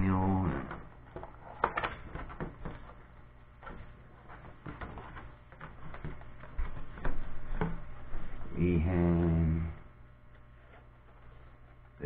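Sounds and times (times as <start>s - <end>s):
paper and cardboard rustling: 0.6s - 8.4s.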